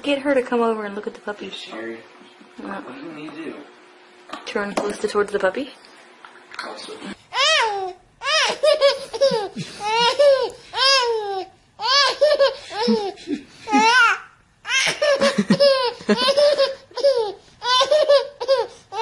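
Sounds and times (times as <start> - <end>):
baby giggling: 7.4 - 19.0.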